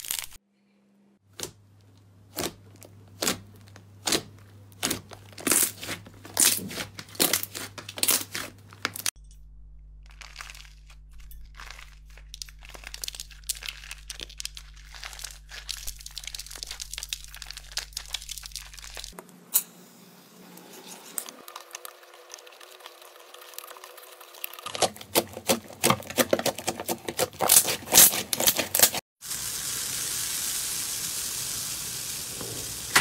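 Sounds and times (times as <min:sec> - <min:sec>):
dry slime crackling and tearing: 0:00.0 - 0:00.4, 0:02.3 - 0:09.1, 0:10.0 - 0:19.2, 0:24.4 - 0:29.0
slime squelching and popping: 0:01.3 - 0:09.1, 0:10.0 - 0:19.2, 0:24.4 - 0:28.9.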